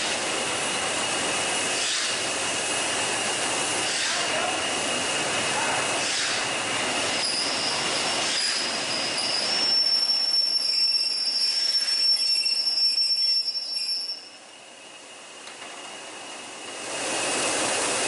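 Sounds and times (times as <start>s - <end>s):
train rolling noise: 0.0s - 18.0s
train wheel squeal: 7.1s - 15.1s.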